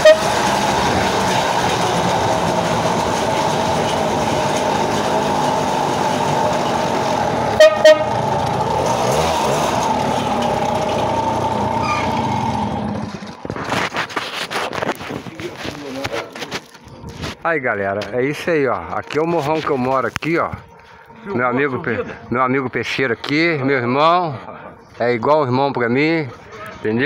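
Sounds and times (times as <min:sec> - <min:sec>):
short horn beeps: 0:00.0 - 0:00.4, 0:07.6 - 0:08.2
two-stroke engine under load: 0:00.0 - 0:17.4.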